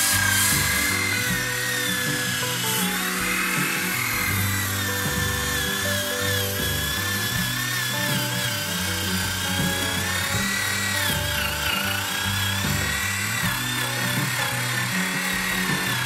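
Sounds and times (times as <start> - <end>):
background music with bass: 0.0 - 16.0
orbital sander whining: 0.0 - 16.0.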